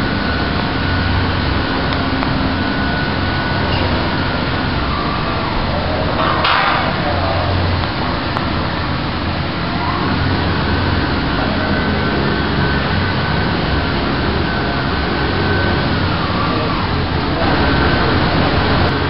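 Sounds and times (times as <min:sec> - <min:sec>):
machine mechanical rush and hum: 0:00.0 - 0:19.0
thin high whine: 0:00.0 - 0:19.0.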